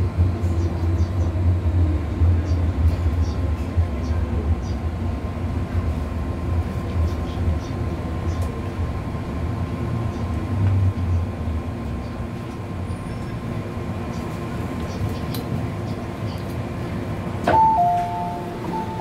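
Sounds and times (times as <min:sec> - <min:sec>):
train rolling rumble: 0:00.0 - 0:19.0
train door clunk: 0:17.4 - 0:19.0.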